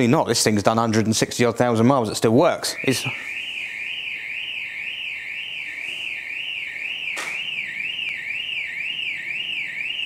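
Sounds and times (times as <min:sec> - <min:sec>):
warbling electronic alarm: 0:02.5 - 0:10.0
sharp click: 0:07.1 - 0:07.4.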